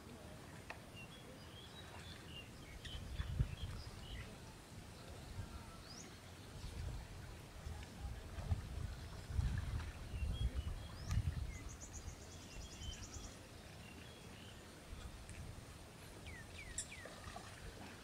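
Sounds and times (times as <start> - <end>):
small birds trilling and chirping: 0.9 - 6.8, 9.0 - 15.3, 16.0 - 18.0.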